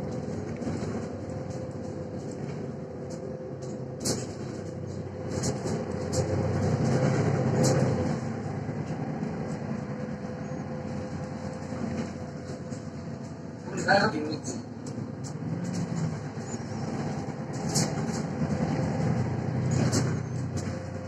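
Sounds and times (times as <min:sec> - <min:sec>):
bus engine and road rumble: 0:00.0 - 0:21.0
sharp rattles in bus cabin: 0:00.0 - 0:21.0.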